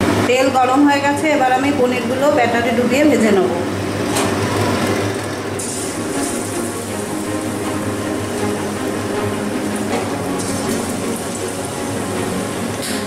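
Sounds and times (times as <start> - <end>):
food deep-frying in hot oil: 5.6 - 13.0.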